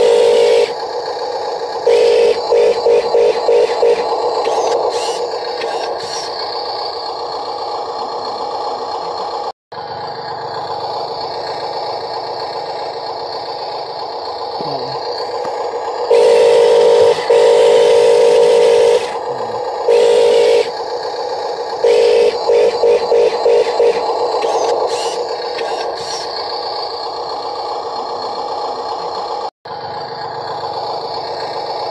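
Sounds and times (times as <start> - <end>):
electric motor whining: 1.9 - 6.4, 14.6 - 20.7, 21.8 - 26.3.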